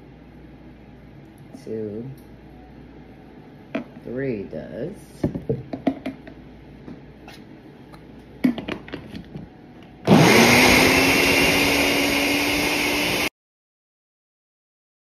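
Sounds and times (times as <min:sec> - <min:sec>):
blender motor running: 0:10.0 - 0:13.3.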